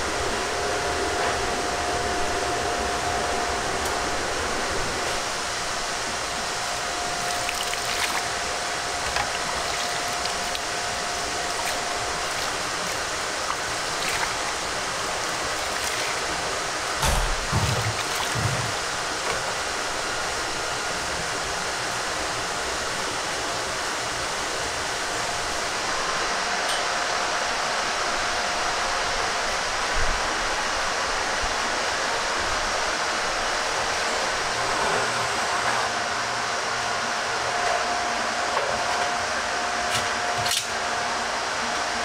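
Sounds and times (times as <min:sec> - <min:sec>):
commercial kitchen rushing noise: 0:00.0 - 0:22.1
low thumps: 0:17.0 - 0:18.8.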